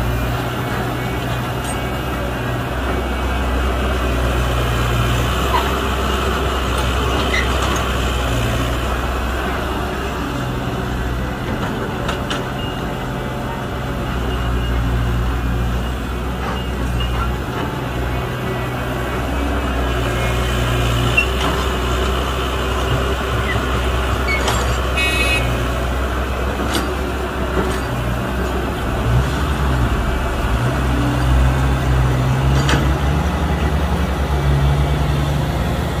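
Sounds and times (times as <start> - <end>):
heavy diesel engines running: 0.0 - 36.0.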